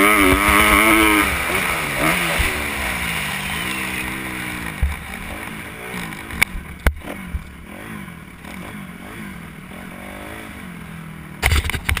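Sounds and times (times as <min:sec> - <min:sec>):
motorbike engine revving: 0:00.0 - 0:12.0
burst of clatter: 0:11.4 - 0:12.0.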